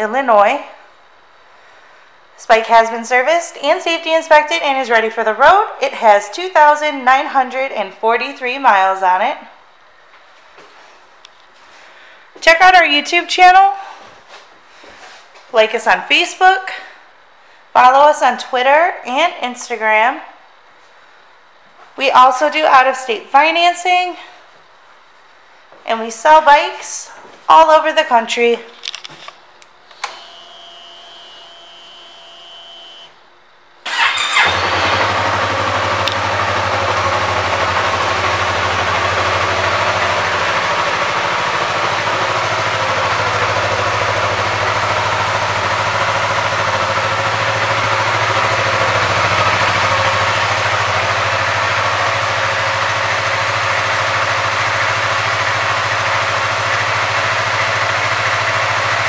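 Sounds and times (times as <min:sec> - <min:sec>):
click: 0:28.8 - 0:30.2, 0:36.0 - 0:36.2
faint whine: 0:28.8 - 0:33.8
motorcycle engine starting and idling: 0:33.8 - 0:59.0.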